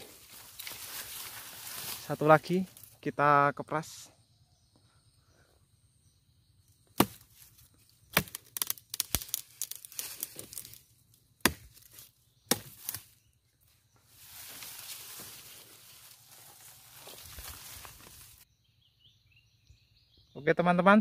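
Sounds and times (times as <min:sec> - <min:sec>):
leaves rustling: 0:00.0 - 0:03.0, 0:07.0 - 0:18.4
blade chopping into branch: 0:07.0 - 0:07.5, 0:08.1 - 0:10.8, 0:11.4 - 0:13.2.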